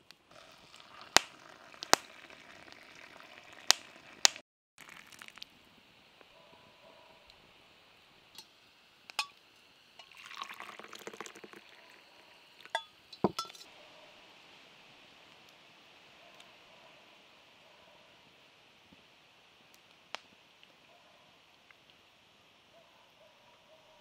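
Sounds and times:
tea trickling and dripping: 0.3 - 5.6, 10.0 - 13.6
glass infuser clinking: 9.1 - 9.4, 10.0 - 12.0, 12.6 - 13.7
glass lid clinks: 12.7 - 13.7.

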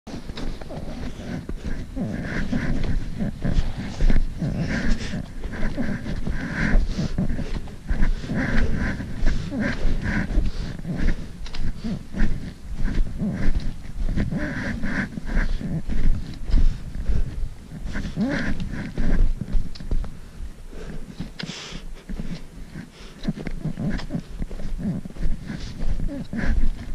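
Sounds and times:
footsteps crunching through snow: 0.1 - 26.9
heavy breathing: 0.1 - 26.9
low microphone rumble: 0.1 - 26.9.

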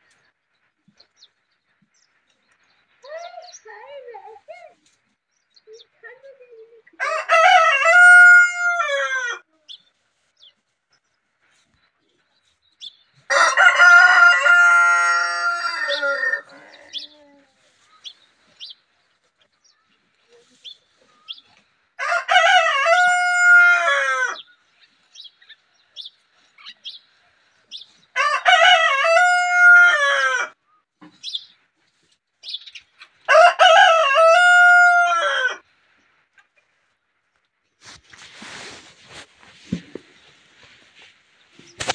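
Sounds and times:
rooster crowing: 7.0 - 9.4, 13.3 - 17.1, 22.0 - 24.4, 28.2 - 30.6, 33.3 - 35.6.

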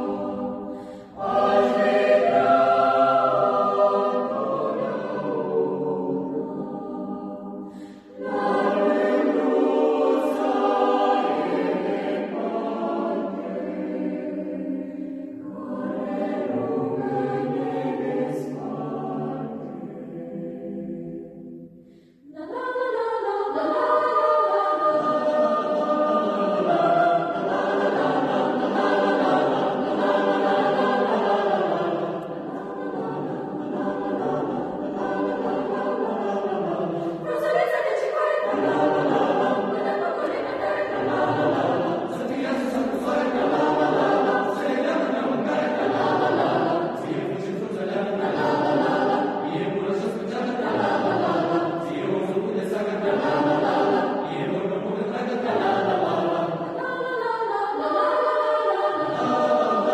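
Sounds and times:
youth choir singing a cappella: 0.0 - 59.9.

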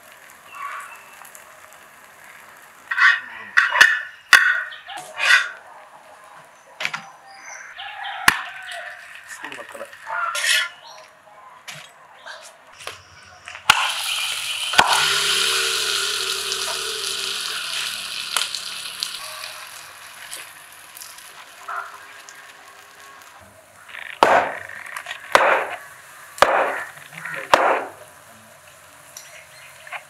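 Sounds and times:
batter sizzling on a griddle: 0.0 - 3.0, 13.7 - 30.0
oil sizzling: 0.0 - 3.0, 13.7 - 30.0.

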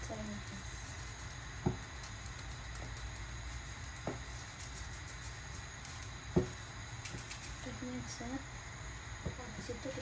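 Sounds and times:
pepper shaken from paper sachet: 0.0 - 8.2
low kitchen hum: 0.0 - 10.0.

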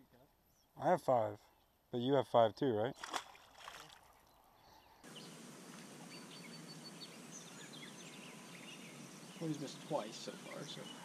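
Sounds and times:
faint bird chirps: 3.9 - 11.0
steady hiss: 5.1 - 11.0.

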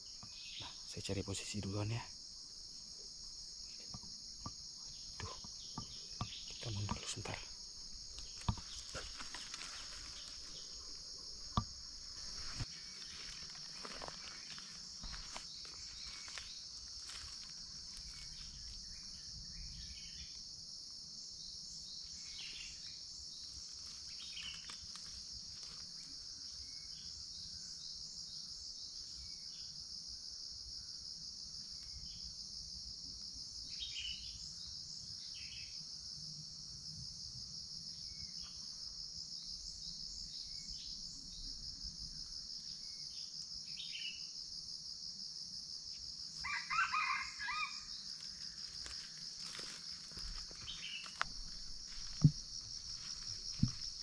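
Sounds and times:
insect chorus buzzing: 0.0 - 54.0
rustling vegetation: 6.7 - 19.1, 23.4 - 26.3, 48.0 - 54.0.

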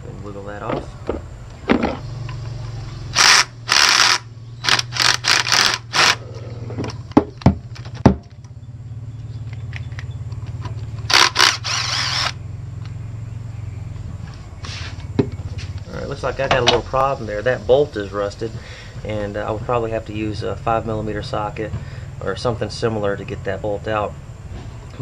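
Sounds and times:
steady low hum: 0.0 - 25.0
cordless drill running: 3.1 - 6.2, 11.1 - 12.4
sharp clicks: 3.2 - 6.2.

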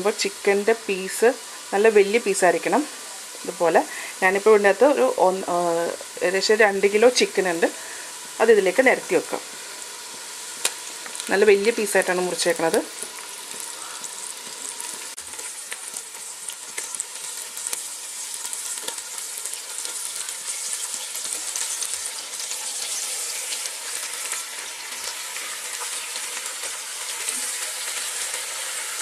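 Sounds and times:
chicken sizzling in hot oil: 0.0 - 29.0.

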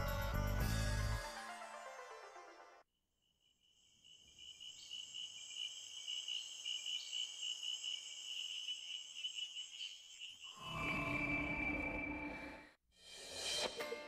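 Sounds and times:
crickets chirping: 3.2 - 12.1.

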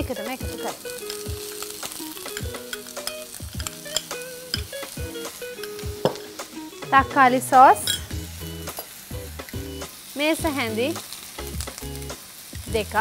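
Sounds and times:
light instrumental music: 0.0 - 13.0
onions sizzling in a pan: 0.0 - 13.0
spoon clicking against pan: 2.2 - 5.0, 5.6 - 6.2.

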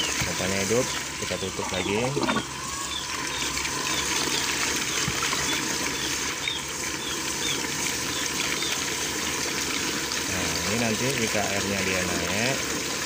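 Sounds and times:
water gushing and splashing into drum: 0.0 - 13.0.

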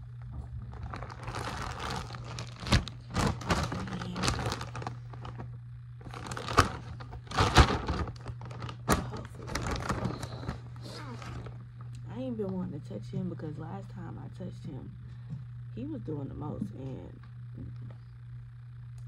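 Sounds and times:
plastic bags crinkling: 0.3 - 11.6.

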